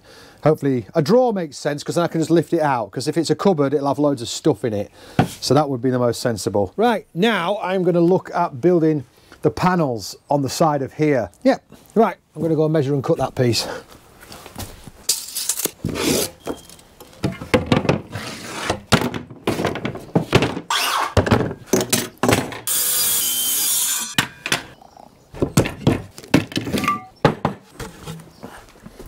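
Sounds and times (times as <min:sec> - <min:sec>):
metal straightedge scraping on plywood: 0:15.2 - 0:16.6, 0:18.1 - 0:18.8, 0:20.7 - 0:21.2
tools knocking and clattering: 0:16.4 - 0:18.1, 0:18.9 - 0:22.7, 0:25.4 - 0:27.9.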